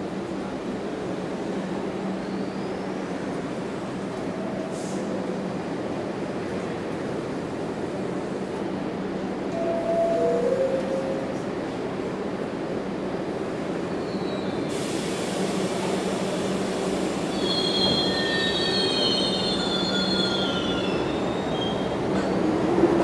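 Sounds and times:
subway train rumbling: 0:00.0 - 0:23.0
train wheels squealing: 0:14.0 - 0:14.7, 0:17.2 - 0:22.5
hiss: 0:14.7 - 0:18.1.

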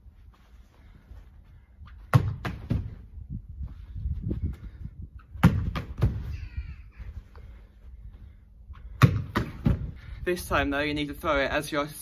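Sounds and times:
football thudding against wall: 0:02.1 - 0:03.0, 0:05.4 - 0:06.2, 0:08.9 - 0:10.0.

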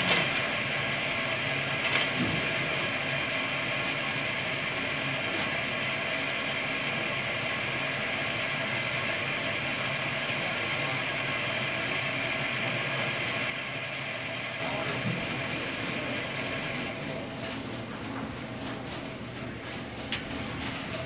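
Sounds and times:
teletype terminal mechanical hum: 0:00.0 - 0:21.0.

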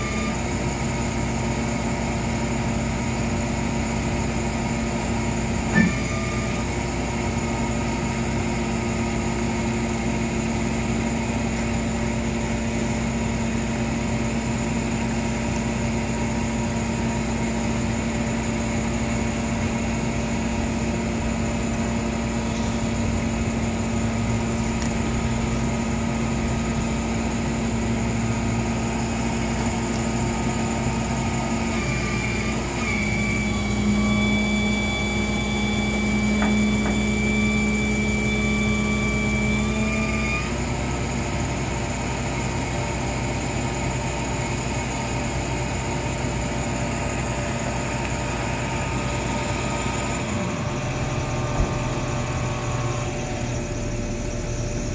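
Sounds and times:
higher steady whine: 0:00.0 - 0:54.9
pickup truck engine running: 0:45.2 - 0:54.9.

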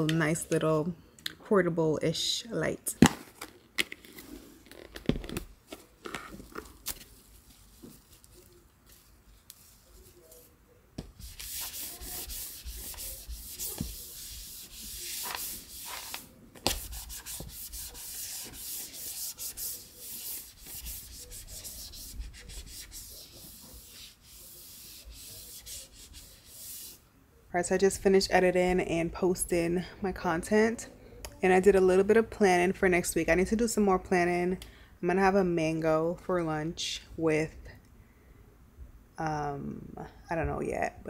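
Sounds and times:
wipe rubbing tabletop: 0:07.5 - 0:27.0.

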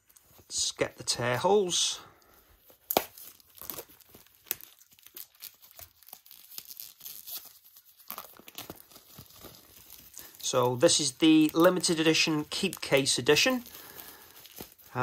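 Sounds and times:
packaging wrap crackling and ripping: 0:02.2 - 0:15.0.

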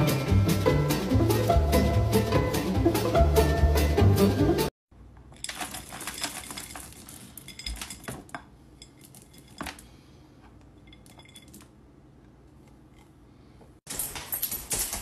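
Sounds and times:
kibble rattling in a metal bowl: 0:05.3 - 0:09.8.

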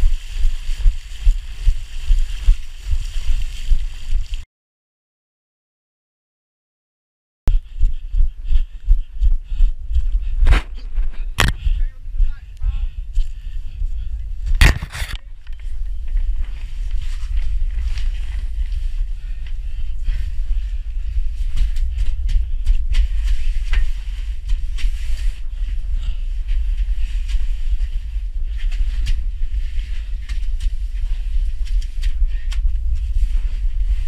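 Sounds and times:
muffled low rumble: 0:07.5 - 0:34.0
camera knocks and scrapes: 0:11.4 - 0:11.6, 0:14.6 - 0:15.3.

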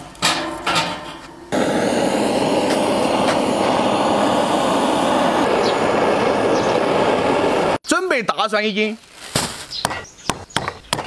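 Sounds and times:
gas torch burning: 0:01.5 - 0:07.8.

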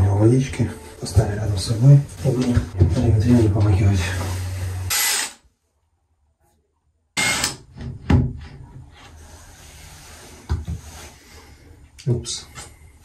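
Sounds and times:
power drill boring into tile: 0:04.9 - 0:05.4, 0:07.2 - 0:07.6.

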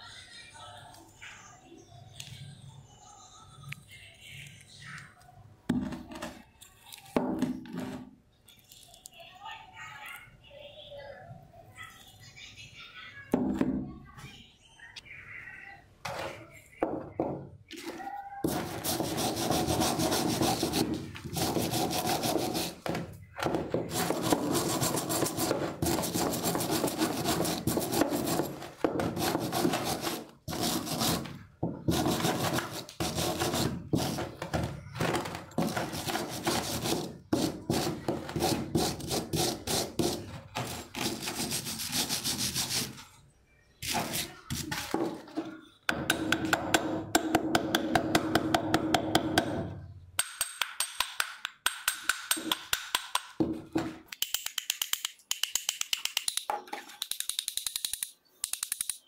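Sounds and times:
wire brush scrubbing metal: 0:18.5 - 0:22.8, 0:23.9 - 0:34.5, 0:35.6 - 0:43.0.

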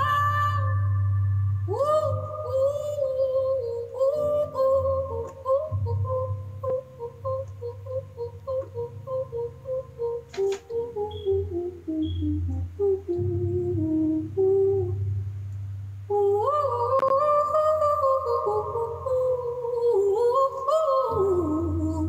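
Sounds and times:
low steady tone: 0:00.0 - 0:22.0
woman singing held notes: 0:01.7 - 0:15.0
woman humming: 0:01.7 - 0:15.1.

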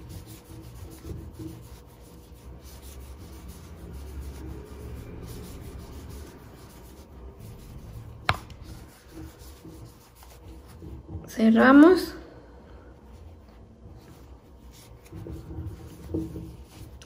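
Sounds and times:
yarn rustling against crochet hook: 0:00.0 - 0:11.9.

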